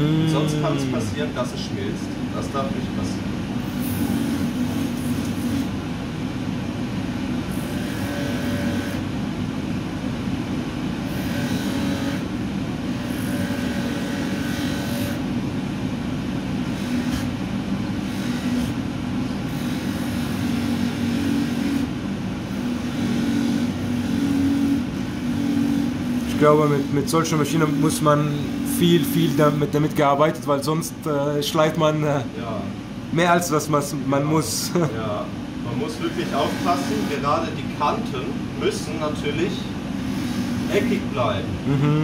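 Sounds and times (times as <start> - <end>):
polishing wheel grinding metal: 35.9 - 37.3.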